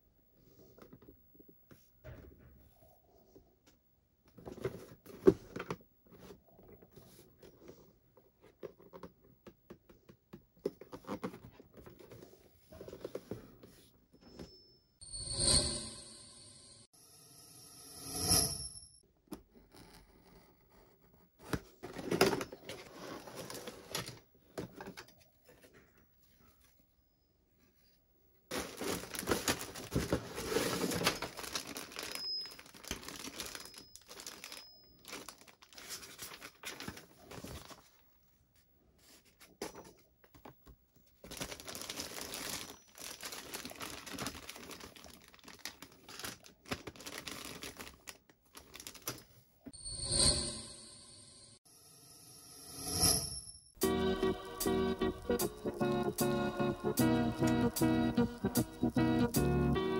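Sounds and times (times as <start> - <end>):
plastic bags crinkling: 28.5 - 38.0, 41.2 - 49.3.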